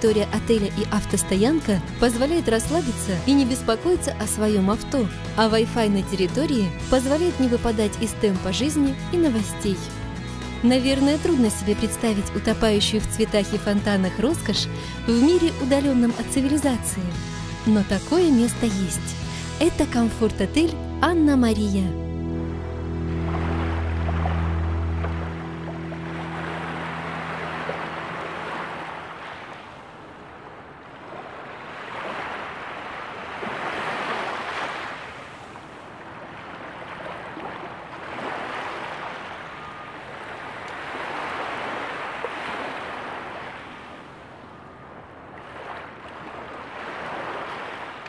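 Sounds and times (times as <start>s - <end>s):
sea waves on sandy shore: 23.0s - 48.0s.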